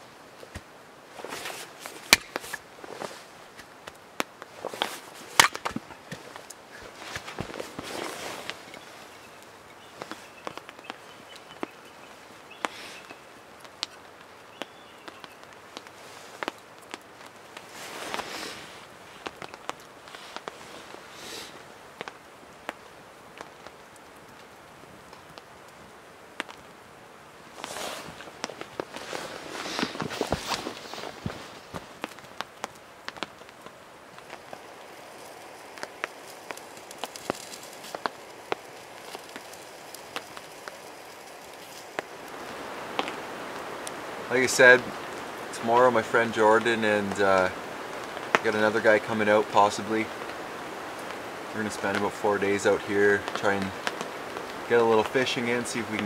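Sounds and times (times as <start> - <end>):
campfire crackling and popping: 0.0 - 56.0
soft steady hiss: 0.0 - 56.0
rustle of wood set down: 0.4 - 9.1, 17.6 - 21.5, 27.5 - 32.3.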